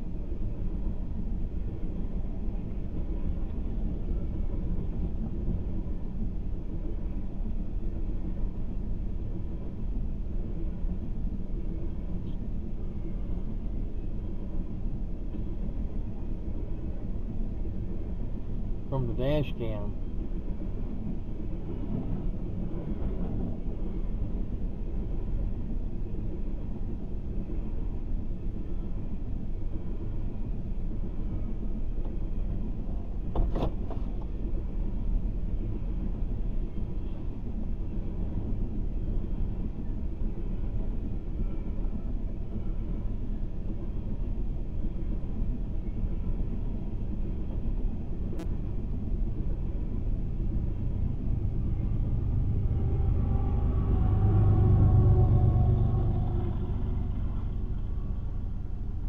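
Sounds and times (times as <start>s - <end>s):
train wheels rumbling on rails: 20.3s - 27.8s, 37.8s - 59.0s.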